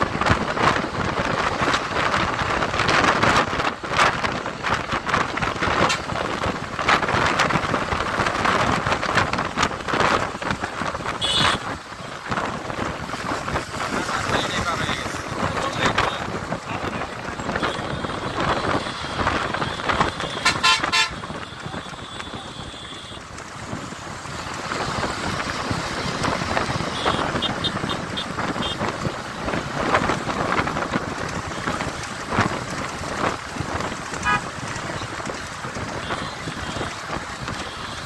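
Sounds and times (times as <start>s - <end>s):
road and wind noise: 0.0s - 38.0s
vehicle horns: 5.8s - 6.3s, 11.0s - 11.8s, 17.3s - 23.3s, 26.7s - 29.0s, 34.1s - 35.2s, 35.8s - 38.0s.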